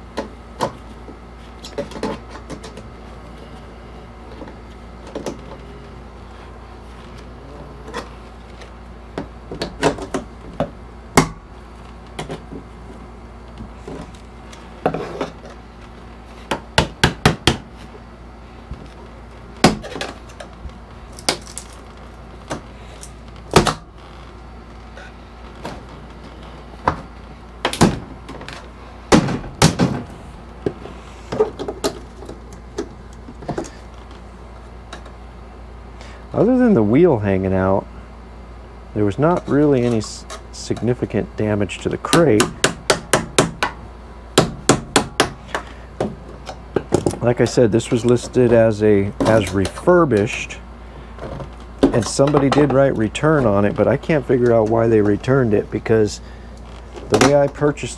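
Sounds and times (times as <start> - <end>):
knocks and bangs on wood: 16.5 - 17.7, 19.6 - 20.1, 26.8 - 28.2, 29.1 - 30.8.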